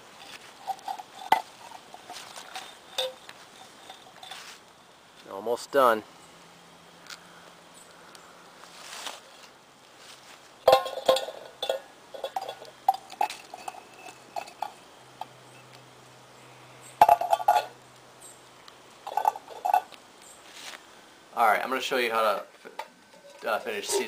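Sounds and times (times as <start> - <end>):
tin cans clinking: 0.2 - 4.5, 10.6 - 15.4, 17.0 - 17.8, 19.0 - 19.9, 22.3 - 24.0.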